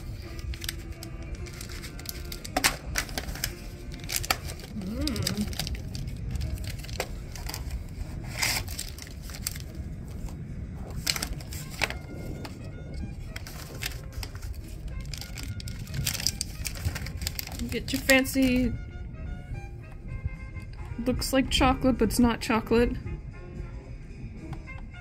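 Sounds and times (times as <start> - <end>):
cat crunching a treat: 0.0 - 9.8
low background hum: 0.0 - 25.0.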